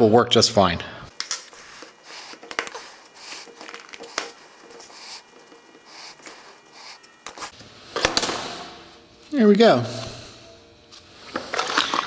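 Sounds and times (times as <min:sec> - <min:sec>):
rubber and gloves rustling: 0:01.1 - 0:07.6.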